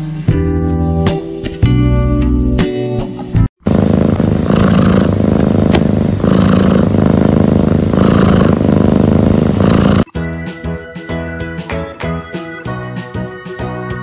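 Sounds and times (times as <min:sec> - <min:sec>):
cat purring loudly: 0:03.6 - 0:10.1.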